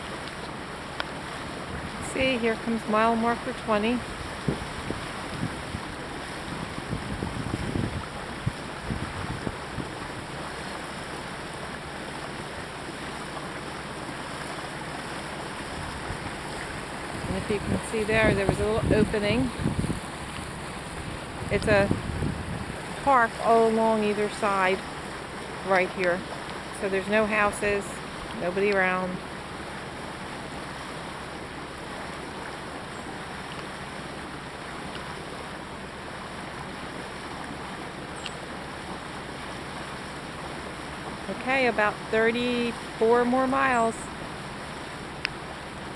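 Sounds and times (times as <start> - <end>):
boat engine drone: 0.0 - 45.9
water rushing along hull: 0.0 - 45.9
wind bumps on microphone: 4.0 - 10.2, 15.8 - 23.1.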